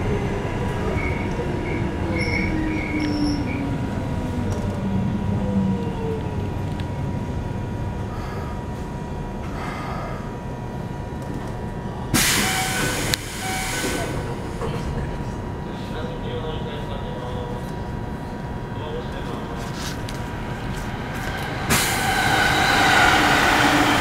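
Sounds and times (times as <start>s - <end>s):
train motor and gear whine: 0.0s - 24.0s
steady hum: 2.8s - 24.0s
loud hiss of air: 12.2s - 14.2s, 21.6s - 23.8s.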